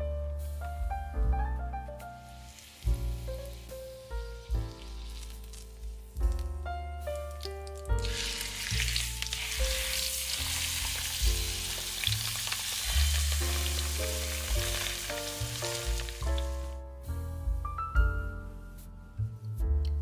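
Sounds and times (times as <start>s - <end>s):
background music: 0.0s - 20.0s
food sizzling in a frying pan: 2.3s - 6.1s, 7.2s - 16.8s.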